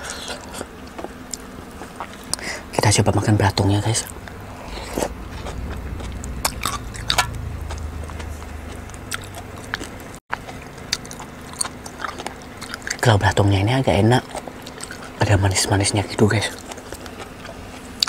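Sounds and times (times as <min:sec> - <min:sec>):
close chewing with mouth clicks: 0:00.0 - 0:02.7, 0:04.0 - 0:15.7, 0:16.4 - 0:18.0
low hum: 0:00.1 - 0:12.8.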